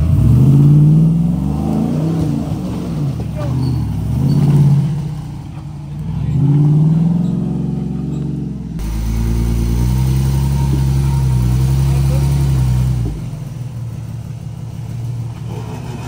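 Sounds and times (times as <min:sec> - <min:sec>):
engine running under load: 0:00.0 - 0:16.0
off-road engine revving: 0:00.0 - 0:16.0.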